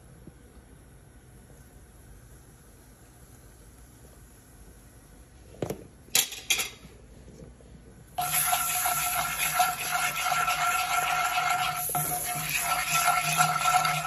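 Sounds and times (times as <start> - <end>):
loud steady hiss: 8.2 - 14.0.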